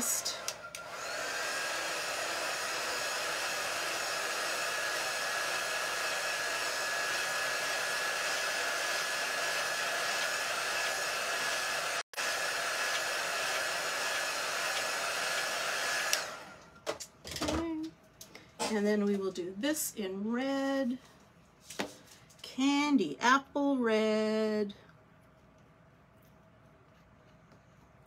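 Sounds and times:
handheld dryer blowing air: 0.0s - 16.7s.

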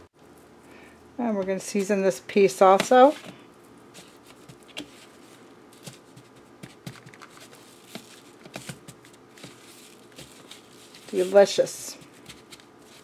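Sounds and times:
faint steady hum: 0.0s - 13.0s
steak tapping and rustling: 5.8s - 13.0s.

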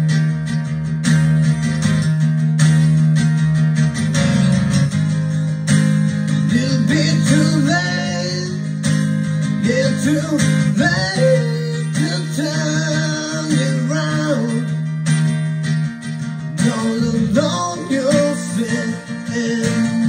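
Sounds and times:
strummed guitar chords: 0.0s - 20.0s
person singing: 6.4s - 9.0s, 9.6s - 14.9s, 16.6s - 20.0s.

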